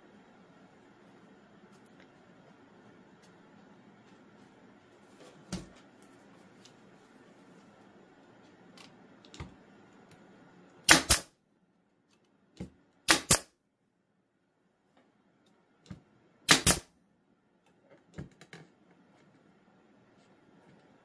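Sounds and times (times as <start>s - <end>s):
nail gun firing: 10.8s - 11.3s, 13.1s - 13.5s, 16.5s - 16.9s.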